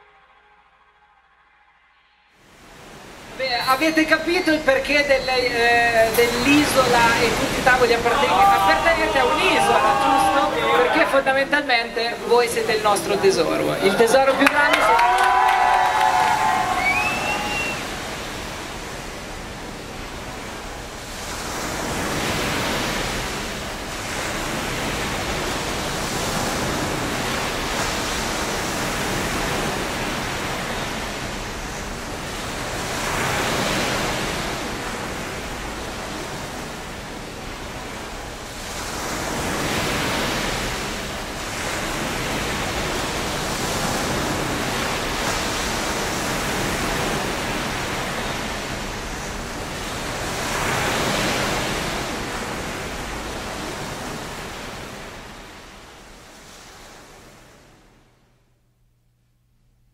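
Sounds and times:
sea waves washing in: 0:02.3 - 0:58.3.

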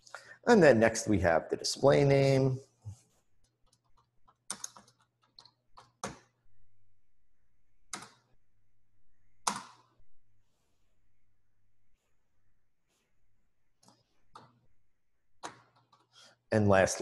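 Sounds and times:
typing on computer keyboard: 0:03.5 - 0:06.4, 0:07.9 - 0:08.3, 0:15.4 - 0:16.1.

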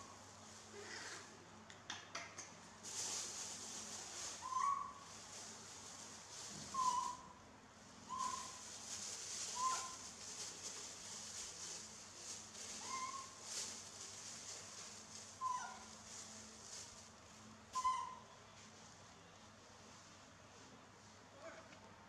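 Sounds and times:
baby monkey high coo calls: 0:04.4 - 0:05.0, 0:06.7 - 0:07.4, 0:08.1 - 0:08.6, 0:09.5 - 0:10.0, 0:12.8 - 0:13.4, 0:15.4 - 0:15.9, 0:17.7 - 0:18.3
plastic bag crinkling: 0:08.1 - 0:17.2.

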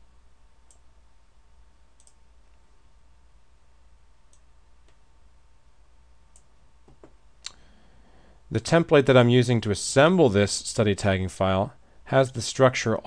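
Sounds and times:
low steady hum: 0:00.0 - 0:13.0
computer mouse clicks: 0:02.0 - 0:02.2.

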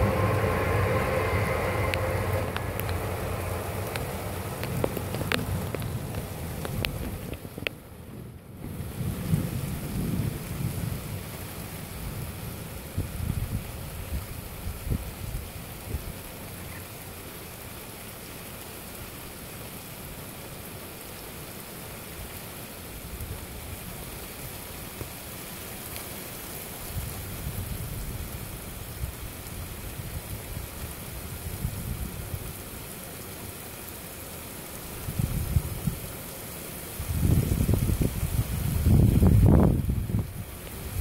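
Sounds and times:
wind buffeting microphone: 0:00.0 - 0:11.3, 0:12.9 - 0:16.2, 0:35.0 - 0:36.0, 0:37.0 - 0:41.0
steady rain falling: 0:00.0 - 0:41.0.

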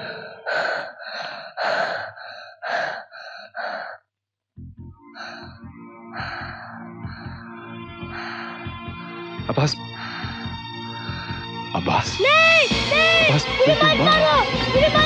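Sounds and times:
child gasping: 0:00.0 - 0:04.0.

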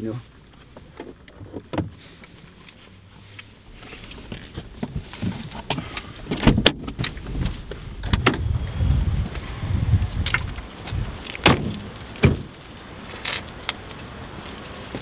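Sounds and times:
rustling: 0:00.1 - 0:08.2
car door latch clicks and knocks: 0:11.3 - 0:12.5.

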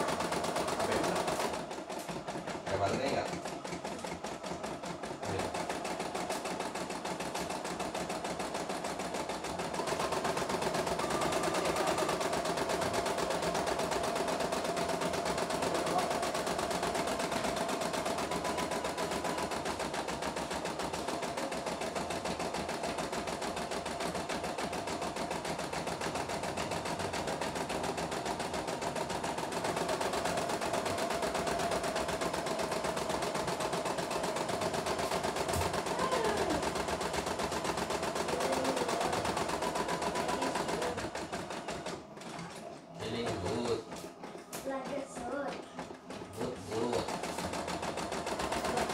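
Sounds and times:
embroidery machine stitching: 0:00.0 - 0:48.9.

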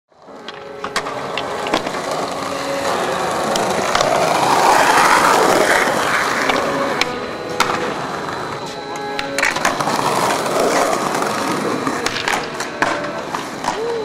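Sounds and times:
skateboard wheels on rough pavement: 0:00.1 - 0:14.0
skateboard clacks: 0:00.2 - 0:14.0.

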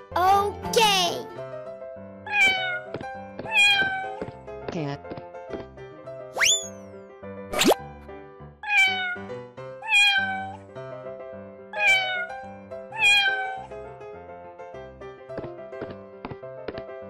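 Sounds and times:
children's background music: 0:00.0 - 0:04.3
cat meowing: 0:02.3 - 0:04.2, 0:08.6 - 0:10.6, 0:11.7 - 0:13.7.

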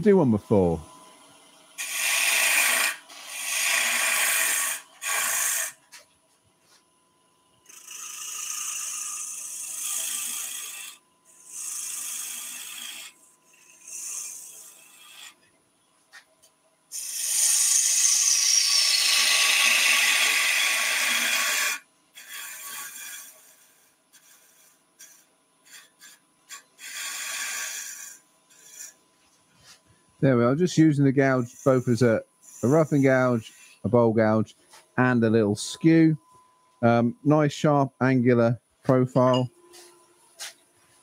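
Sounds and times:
gouge cutting wood on a lathe: 0:01.3 - 0:05.8, 0:07.7 - 0:15.4, 0:17.0 - 0:29.0, 0:31.2 - 0:33.3.

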